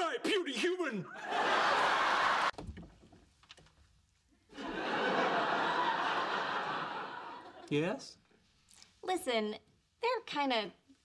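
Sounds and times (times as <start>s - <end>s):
studio audience laughing: 1.1s - 2.5s, 4.6s - 7.7s.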